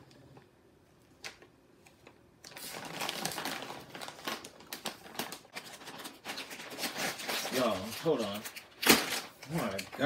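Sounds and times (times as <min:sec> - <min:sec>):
chip bag crinkling: 0:02.5 - 0:10.0.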